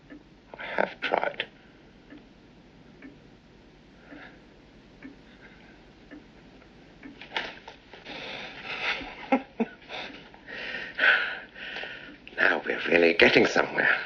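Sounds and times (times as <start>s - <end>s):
clock ticking: 0.0s - 7.3s
man breathing heavily: 8.0s - 9.2s, 9.9s - 12.2s.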